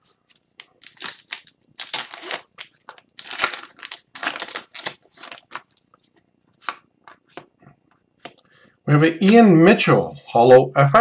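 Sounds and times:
foil wrappers crinkling: 0.0 - 5.9.

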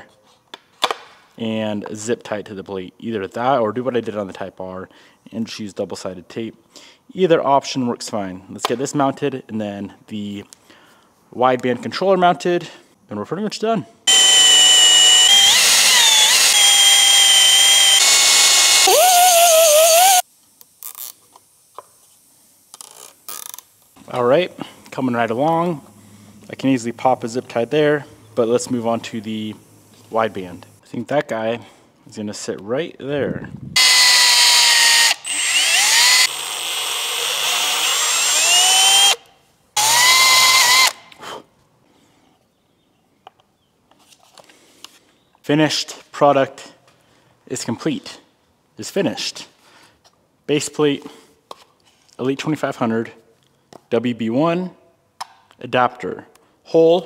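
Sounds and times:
drill drilling through metal: 14.1 - 20.2, 33.8 - 39.2, 39.8 - 41.0.

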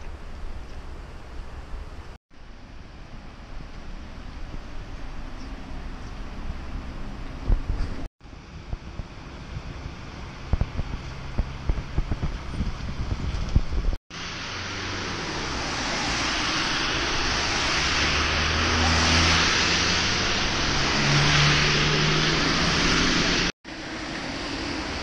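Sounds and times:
lorry engine drone: 14.1 - 25.0
tyres hissing on wet road: 14.1 - 25.0.

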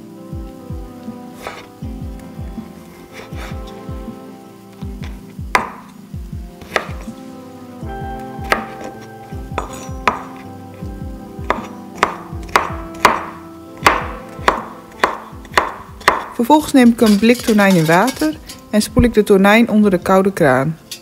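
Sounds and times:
background music with low beat: 0.0 - 19.2
knife knocking on wooden board: 5.0 - 5.8, 9.5 - 10.4.

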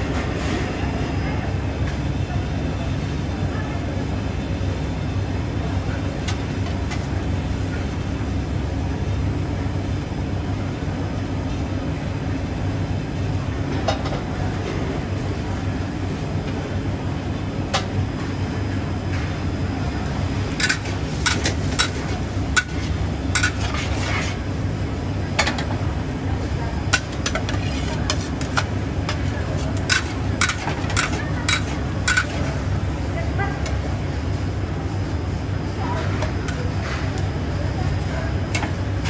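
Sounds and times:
wok burner roaring: 0.0 - 39.0
metal lid and ladle clanking: 23.4 - 23.8.

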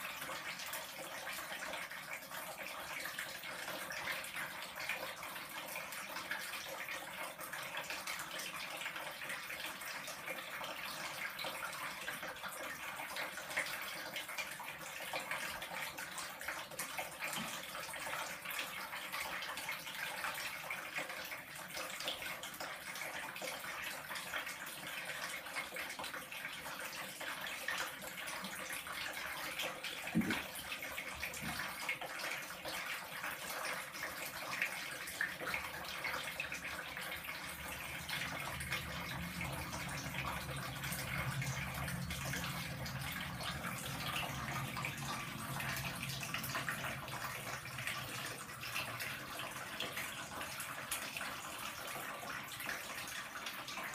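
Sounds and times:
tap water running into bathtub: 0.0 - 53.9
brief thump: 30.2 - 30.4.

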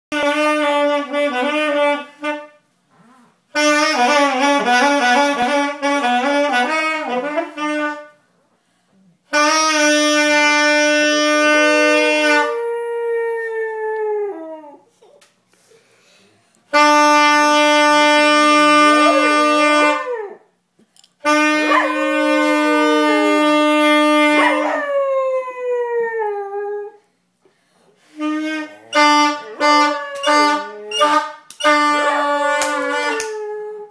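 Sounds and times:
saxophone playing long notes: 0.1 - 2.6, 3.5 - 8.2, 9.3 - 12.8, 16.7 - 20.3, 21.2 - 25.0, 28.0 - 33.7
dog howling: 21.6 - 27.0, 28.9 - 31.2, 31.8 - 33.9.

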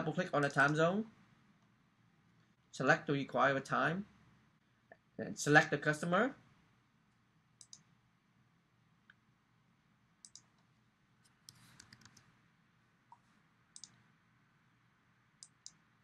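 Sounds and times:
faint computer mouse clicks: 7.6 - 7.9, 10.2 - 12.3, 13.8 - 14.0, 15.4 - 15.8.

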